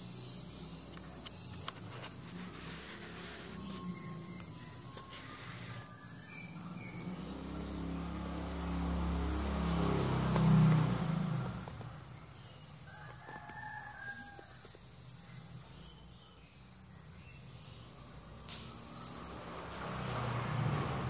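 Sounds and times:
engine passing by: 2.1 - 13.0, 17.8 - 21.0
rooster crowing: 12.7 - 14.8.

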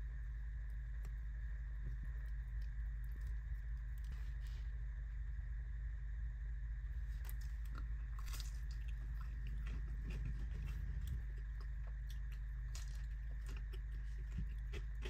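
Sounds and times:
steady low hum: 0.0 - 15.0
crunchy biting and chewing: 7.2 - 15.0.

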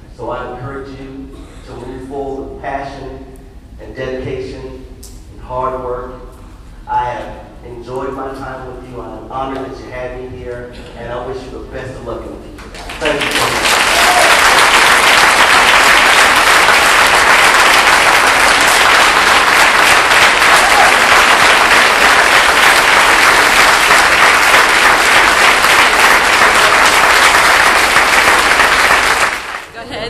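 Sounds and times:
large audience applauding: 12.6 - 29.8.

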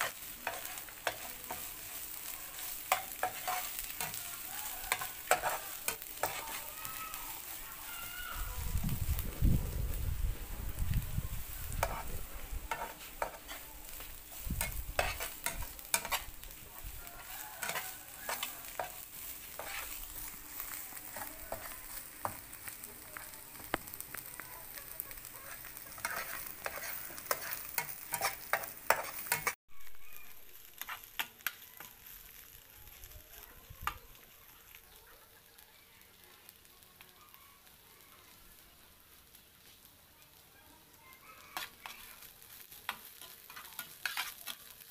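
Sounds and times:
metal spatula scraping pan: 0.0 - 4.2, 4.9 - 6.7, 11.7 - 16.6, 17.2 - 22.6, 25.3 - 29.6, 42.9 - 44.7
fish sizzling: 0.0 - 44.9.

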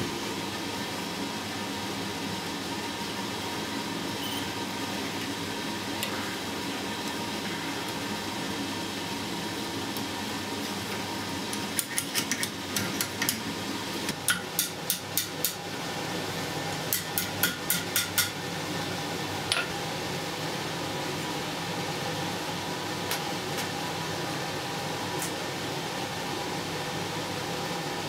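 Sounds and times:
hammer striking iron on anvil: 14.2 - 15.6, 16.9 - 18.4.

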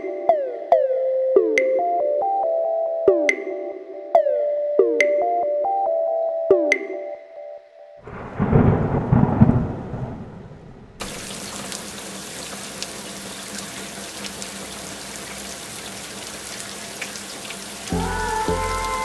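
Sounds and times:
thunder rumbling: 8.0 - 11.8
rain hissing and pattering: 8.0 - 19.0.

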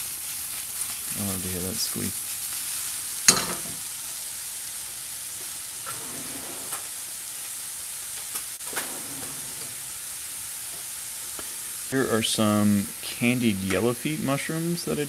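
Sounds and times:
mushrooms sizzling in a pan: 0.0 - 15.0
pan clanking on stove grate: 3.3 - 3.8.

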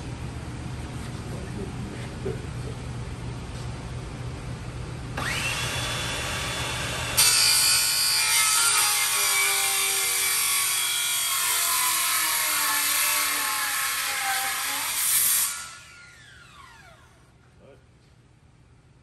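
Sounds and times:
circular saw cutting wood: 5.2 - 17.2.

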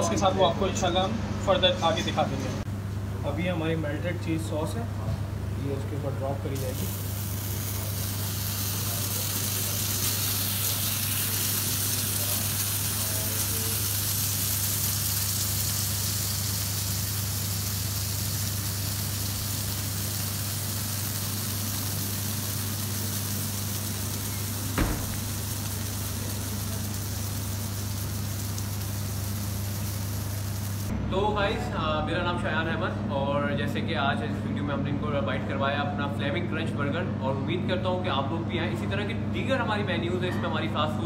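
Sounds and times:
cheese sauce sizzling: 6.5 - 30.9.

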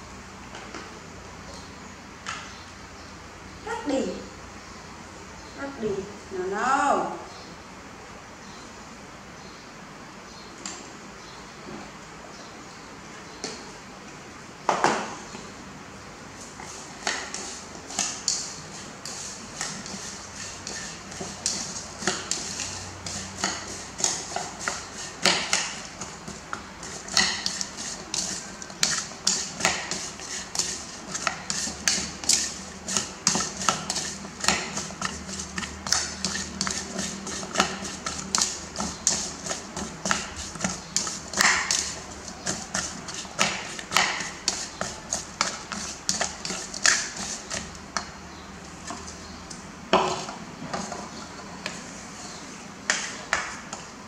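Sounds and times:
plastic spoon scraping ceramic bowl: 17.0 - 49.2.

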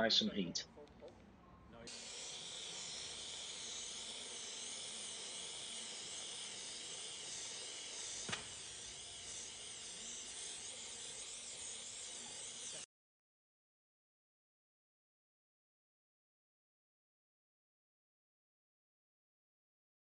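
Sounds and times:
gas torch flame hissing: 1.9 - 12.8.

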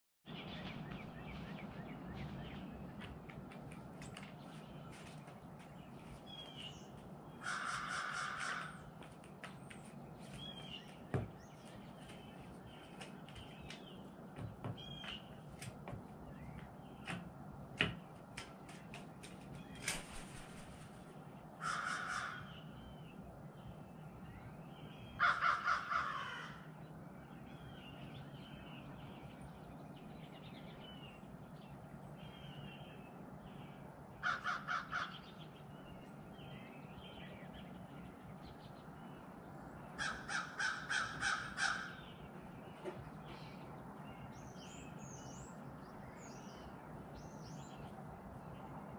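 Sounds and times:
small birds chirping: 0.3 - 48.9
crow cawing: 7.4 - 8.9, 21.6 - 22.6, 25.2 - 26.7, 34.2 - 35.2, 40.0 - 42.0.

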